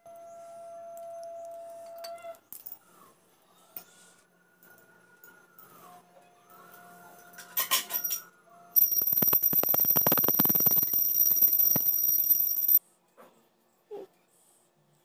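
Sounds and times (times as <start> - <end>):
hand bell rung rapidly: 8.8 - 12.8.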